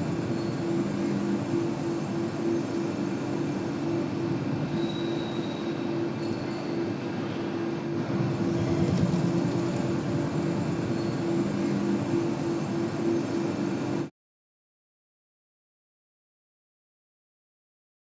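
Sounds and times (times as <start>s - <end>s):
crane engines rumbling: 0.0s - 14.1s.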